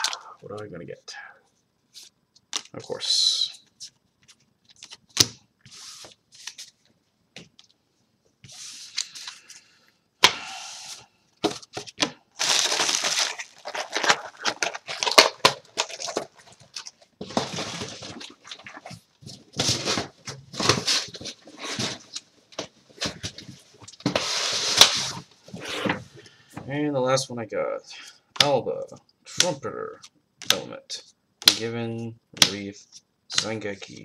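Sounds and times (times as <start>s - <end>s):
foil wrappers rustling and crackling: 12.3s - 22.2s.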